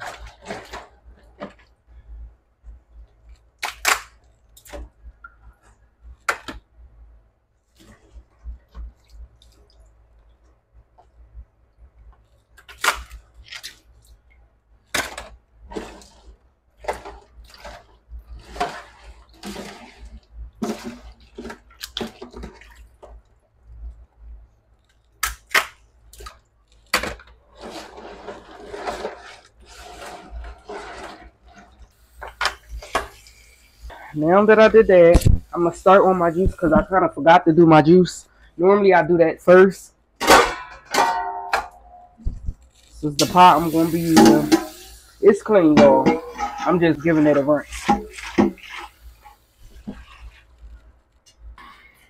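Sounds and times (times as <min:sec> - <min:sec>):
scrubbing noise: 0:27.5 - 0:31.9, 0:42.2 - 0:50.6.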